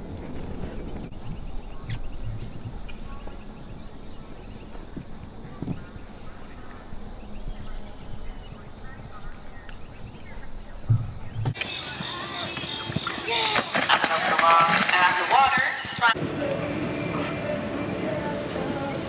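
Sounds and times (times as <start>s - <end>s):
crickets chirping: 0.0s - 19.0s
faint dull thuds: 10.8s - 13.3s.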